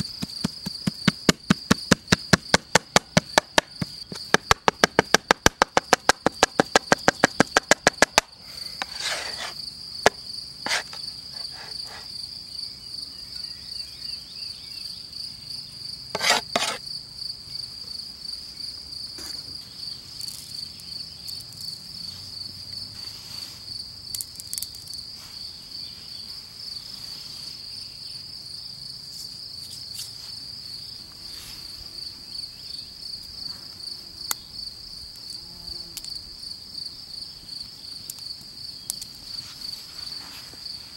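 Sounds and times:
crickets chirring: 0:00.0 - 0:40.9
knife chopping on wooden board: 0:10.7 - 0:11.0, 0:16.2 - 0:16.8.

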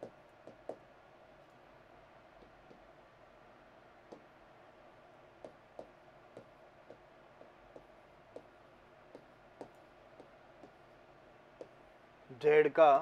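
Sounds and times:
faint room hum: 0:00.0 - 0:13.0
chalk tapping on chalkboard: 0:00.4 - 0:00.8, 0:05.4 - 0:08.5.

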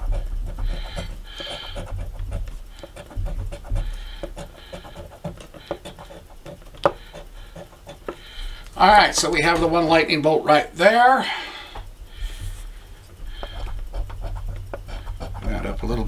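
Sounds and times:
coin scratching lottery ticket: 0:00.0 - 0:09.2, 0:13.3 - 0:16.0.

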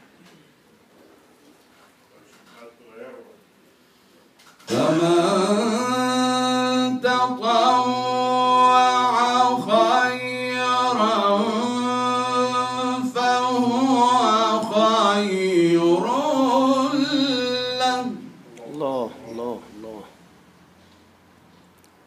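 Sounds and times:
man chanting melodically: 0:04.7 - 0:20.2.

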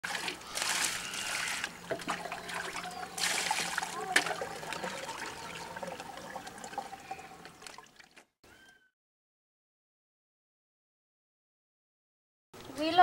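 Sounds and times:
water splashing in basin: 0:00.0 - 0:08.3.

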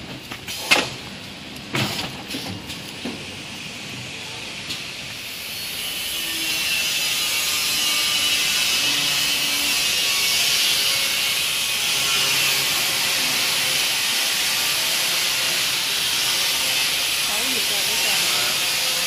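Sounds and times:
packing machine hissing: 0:11.4 - 0:19.0.

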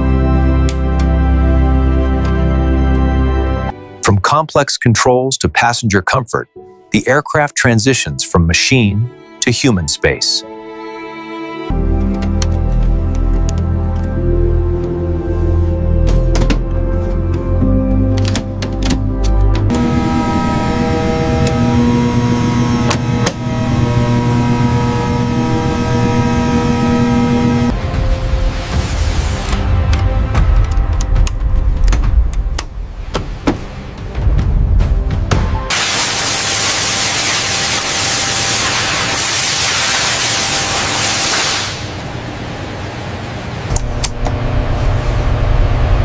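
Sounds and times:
factory machinery hum: 0:19.5 - 0:32.0, 0:35.7 - 0:46.0
loud steady hiss: 0:35.7 - 0:42.0.

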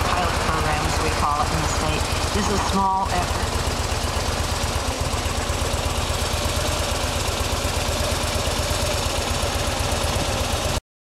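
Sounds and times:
motorcycle engine running: 0:00.0 - 0:10.8.

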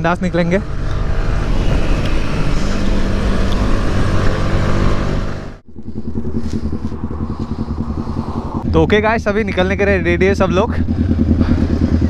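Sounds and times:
motorcycle engine cruising: 0:00.0 - 0:12.0
wind and road noise: 0:00.0 - 0:12.0
motorcycle engine idling: 0:05.6 - 0:12.0.

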